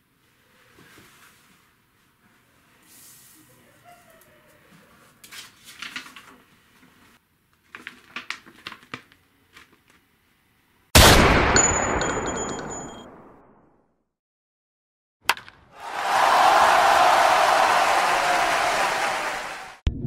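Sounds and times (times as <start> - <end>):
paper rustling: 5.2 - 10.0.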